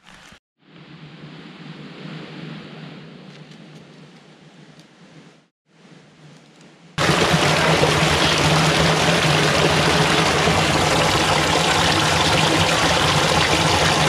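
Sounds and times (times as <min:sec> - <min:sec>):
stream rushing over rocks: 0:07.0 - 0:14.0.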